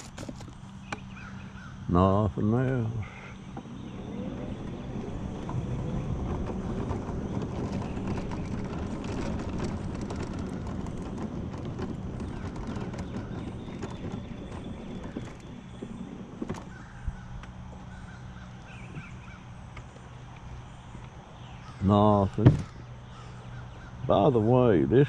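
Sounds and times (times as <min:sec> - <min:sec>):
scooter frame rattling: 0:00.0 - 0:01.7, 0:03.1 - 0:24.8
small tyres rumbling on asphalt: 0:00.0 - 0:25.0.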